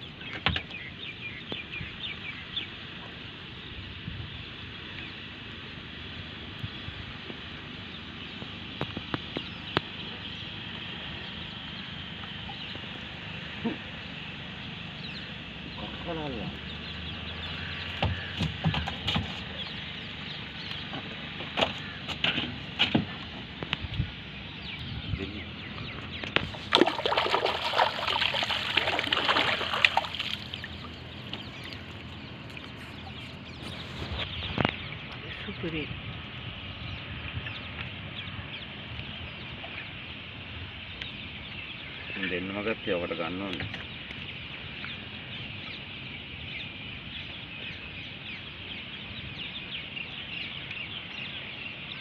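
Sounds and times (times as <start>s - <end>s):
water around a boat: 0.0s - 52.0s
wind: 0.0s - 52.0s
water splashing and dripping: 26.2s - 33.8s
water trickling: 26.3s - 33.9s.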